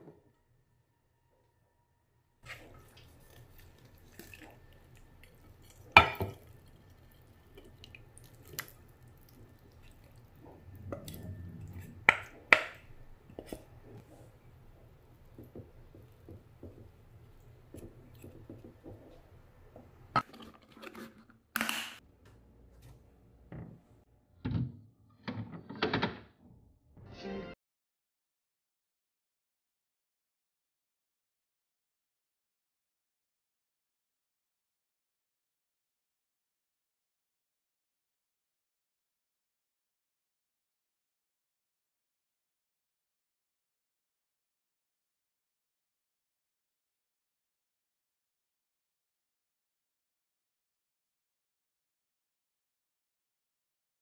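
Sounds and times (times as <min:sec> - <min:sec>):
spatula scraping and rustling: 0:02.4 - 0:04.6, 0:20.2 - 0:21.3.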